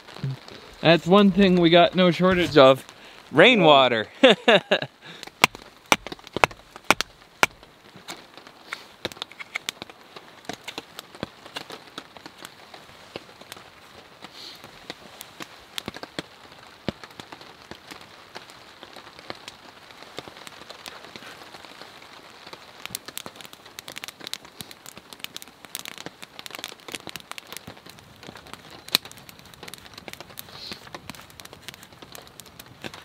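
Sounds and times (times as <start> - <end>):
steady rain falling: 0.0 - 33.0.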